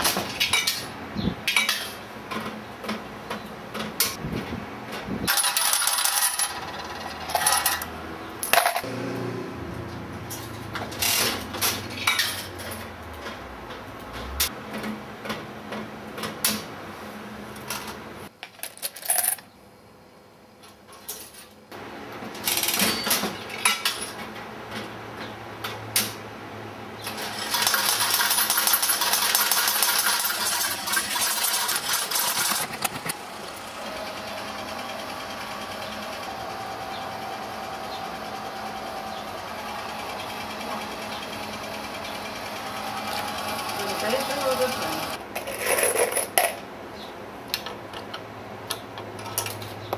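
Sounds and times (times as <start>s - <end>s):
slot machine mechanism clicking: 5.3s - 8.9s, 22.4s - 24.1s, 27.0s - 33.1s
rapid metallic clatter: 27.1s - 33.2s.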